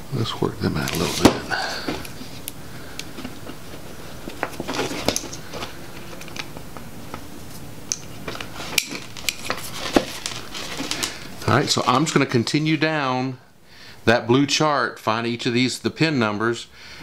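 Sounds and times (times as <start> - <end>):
rustling of wire insulation: 0.6 - 12.8.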